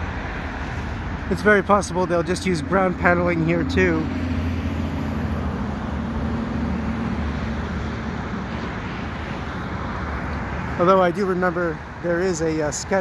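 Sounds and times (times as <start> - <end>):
highway traffic rushing: 0.0 - 13.0.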